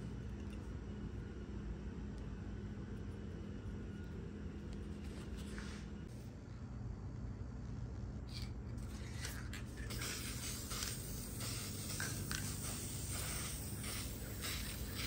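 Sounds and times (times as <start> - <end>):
aerosol spray can hissing: 9.8 - 15.0.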